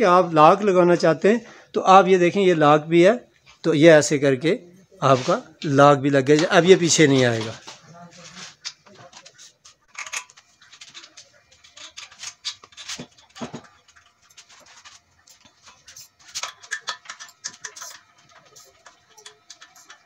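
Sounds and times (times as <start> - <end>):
metal parts clicking and rattling: 9.9 - 20.0.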